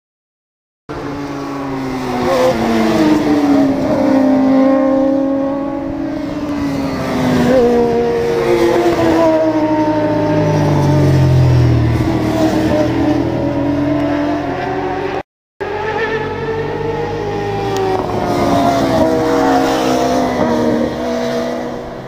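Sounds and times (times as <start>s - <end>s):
racing motorcycle engines revving: 0.9s - 22.0s.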